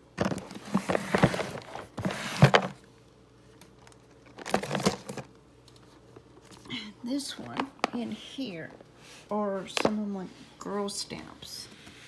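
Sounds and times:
plastic tubs rustling and clattering: 0:00.0 - 0:02.8, 0:03.7 - 0:06.7.

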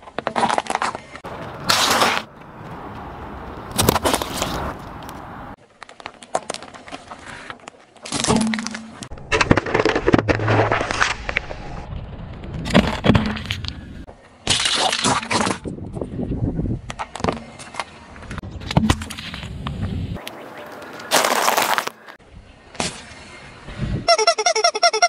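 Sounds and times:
tyre crushing objects: 0:20.6 - 0:22.2.

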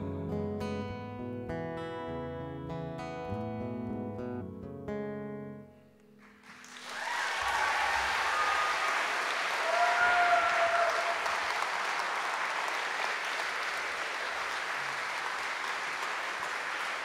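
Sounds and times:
audience applauding: 0:06.2 - 0:17.0.

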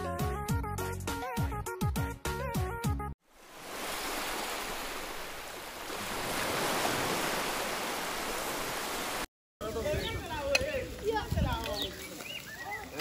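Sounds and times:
waves breaking on shore: 0:03.2 - 0:09.3
wind: 0:03.2 - 0:13.0.

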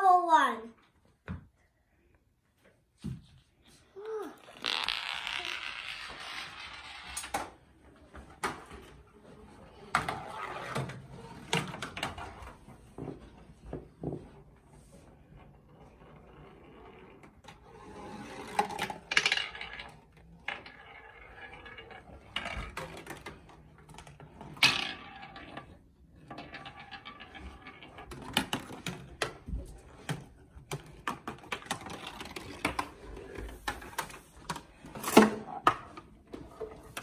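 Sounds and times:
marble rolling in cardboard tubes: 0:04.0 - 0:37.0
marble clicks and knocks: 0:04.4 - 0:07.5, 0:18.4 - 0:29.4.

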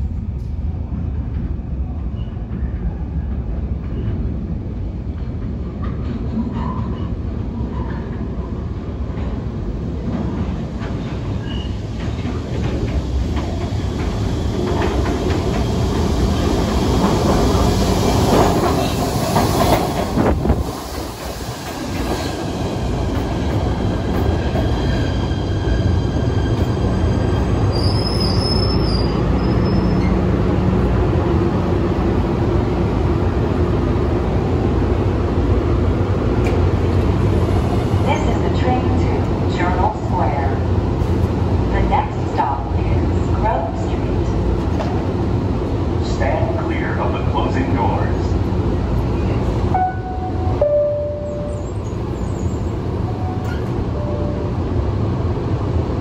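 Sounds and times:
subway train wheels rumbling: 0:00.0 - 0:56.0
high wheel squeal: 0:24.8 - 0:30.2.

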